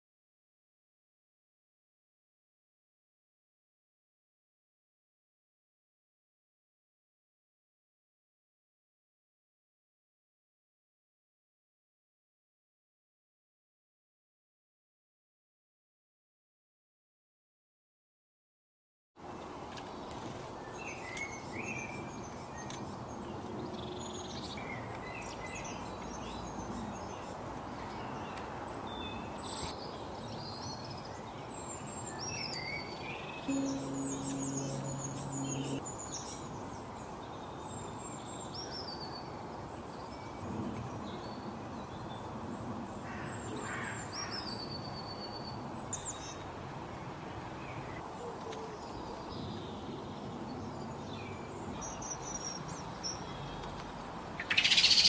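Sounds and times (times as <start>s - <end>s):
songbirds chirping and singing: 20.0s - 39.3s, 54.4s - 55.0s
low steady hum: 33.5s - 35.8s.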